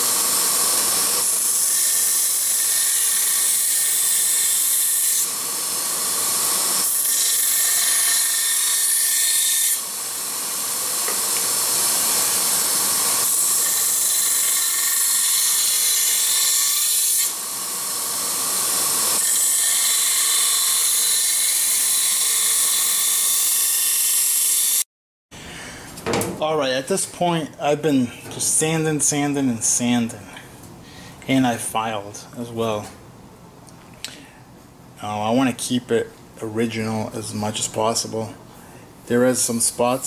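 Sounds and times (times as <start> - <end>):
belt sander grinding metal: 0.0 - 24.2.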